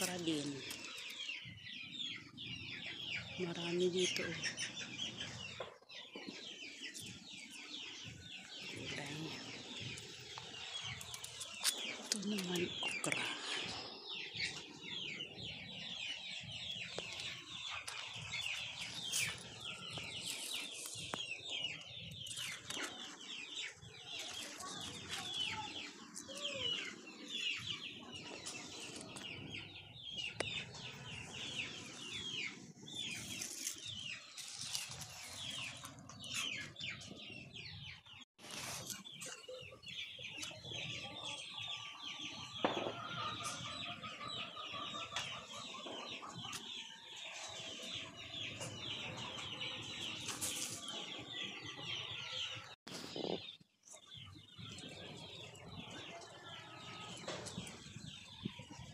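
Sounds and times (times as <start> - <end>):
small birds twittering: 0.0 - 58.9
chickens clucking: 16.4 - 58.9.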